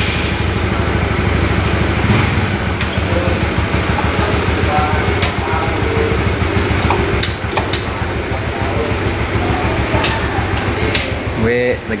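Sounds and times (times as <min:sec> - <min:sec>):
low droning hum: 0:00.0 - 0:12.0
faint indistinct voices: 0:03.0 - 0:12.0.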